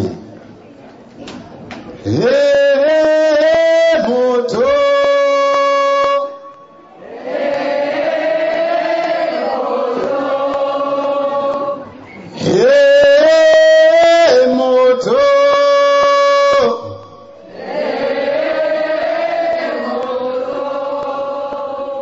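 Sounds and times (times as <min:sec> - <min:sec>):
crowd singing together: 0:06.3 - 0:22.0
lead singer into microphone: 0:09.9 - 0:17.4.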